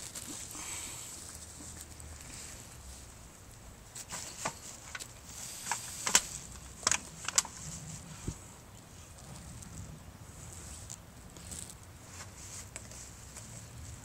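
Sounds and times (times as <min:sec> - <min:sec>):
rustling through trash and plastic bags: 0:00.0 - 0:03.3.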